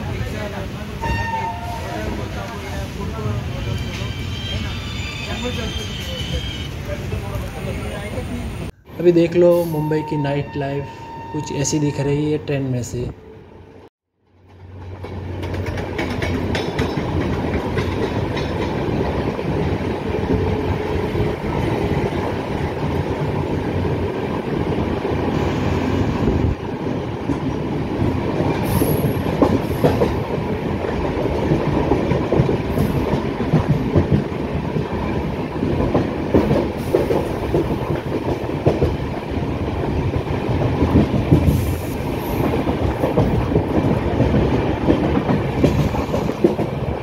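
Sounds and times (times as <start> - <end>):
train wheels rumbling on track: 0.0 - 10.1, 14.2 - 47.0
high wheel squeals: 3.5 - 6.9, 9.6 - 12.2
rail-joint clacks: 14.4 - 20.5, 27.2 - 47.0.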